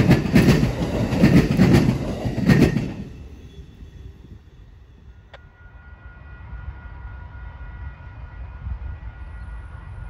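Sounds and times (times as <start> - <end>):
distant train rumble: 0.0 - 10.0.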